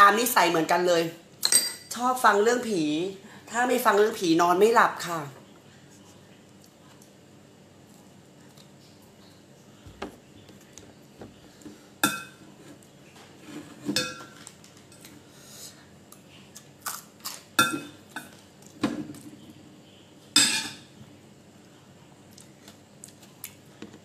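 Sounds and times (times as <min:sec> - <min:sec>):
metal spoon clinking in metal bowl: 0:01.4 - 0:02.0.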